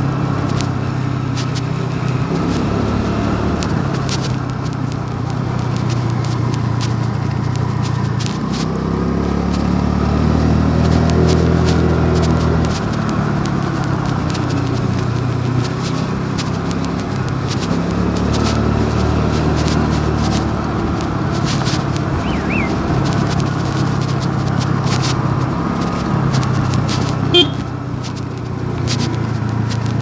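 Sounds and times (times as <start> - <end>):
scooter engine running: 0.0 - 30.0
engine blip: 22.1 - 22.9, 27.2 - 27.7.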